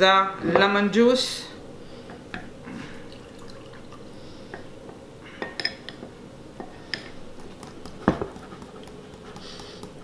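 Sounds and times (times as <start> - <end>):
liquid pouring: 3.0 - 4.2.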